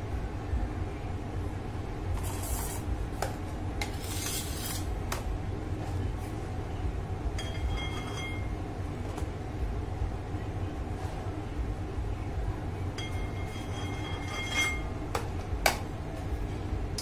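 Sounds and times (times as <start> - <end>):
steady low rumble: 0.0 - 3.8, 4.9 - 17.0
palette knife scraping cream: 3.8 - 4.9.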